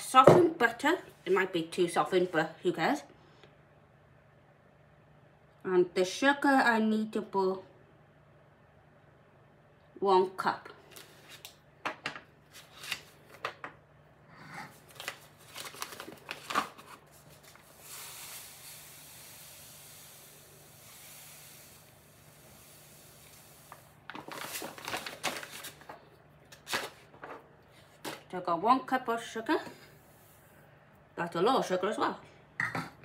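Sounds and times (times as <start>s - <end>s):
sugar pouring hiss: 17.4s - 24.0s.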